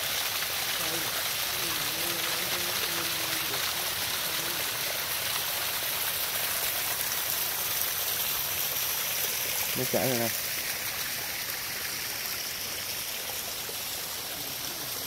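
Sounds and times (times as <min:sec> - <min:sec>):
water splashing down rocks: 0:00.0 - 0:15.0.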